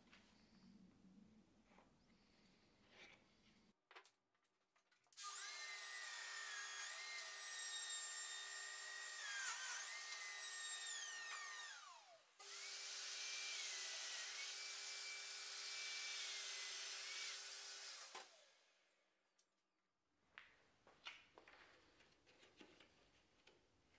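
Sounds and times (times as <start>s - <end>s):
mortise joiner motor cutting wood: 5.2s - 18.6s.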